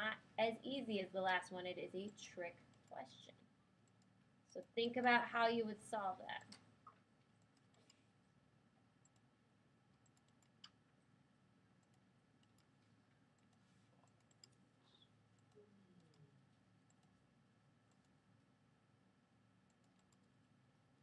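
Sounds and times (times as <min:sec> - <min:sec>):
faint clicks: 0:09.0 - 0:09.3, 0:10.0 - 0:10.8, 0:11.8 - 0:17.2, 0:17.9 - 0:18.2, 0:19.7 - 0:20.4.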